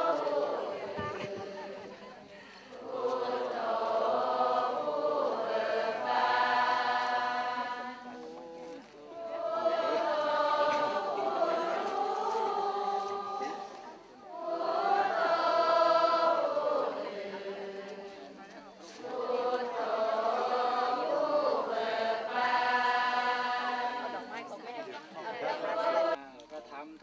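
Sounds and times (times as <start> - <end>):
crowd chanting in unison: 0.0 - 26.2.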